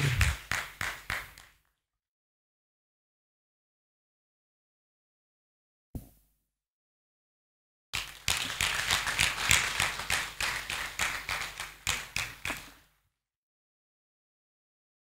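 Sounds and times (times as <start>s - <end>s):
crowd clapping: 0.0s - 1.6s, 8.0s - 12.9s.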